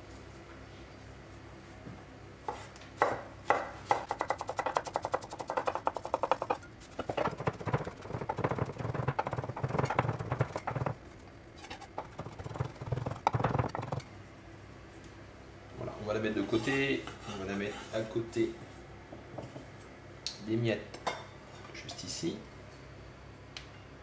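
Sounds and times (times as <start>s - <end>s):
knife chopping on wooden board: 2.5s - 11.0s, 11.9s - 14.0s.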